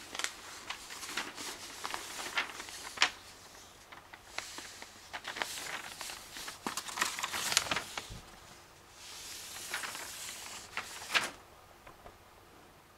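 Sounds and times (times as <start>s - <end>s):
paper printout rustling and crackling: 0.0s - 11.4s.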